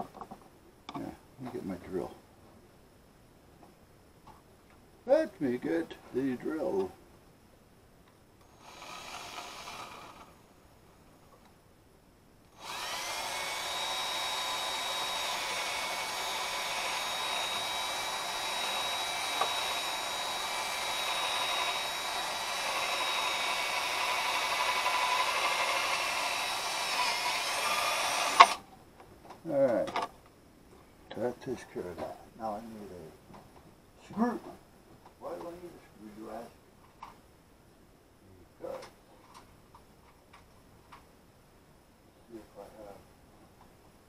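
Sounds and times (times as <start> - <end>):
electric drill whining: 8.4 - 10.5, 12.5 - 28.6.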